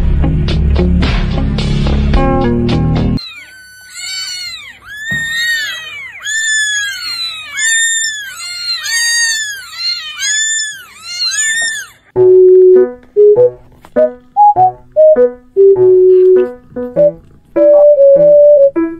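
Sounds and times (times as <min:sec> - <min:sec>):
kitten mewing: 0:03.2 - 0:12.1.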